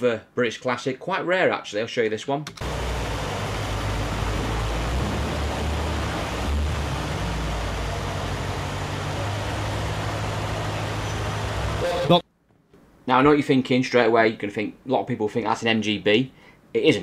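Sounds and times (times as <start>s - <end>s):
car engine running: 2.6s - 12.1s.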